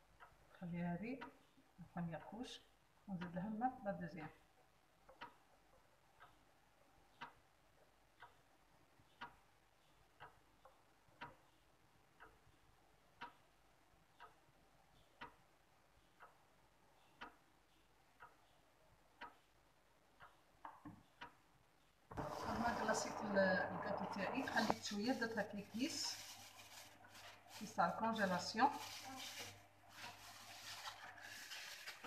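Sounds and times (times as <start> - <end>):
clock ticking: 0.0 - 28.6.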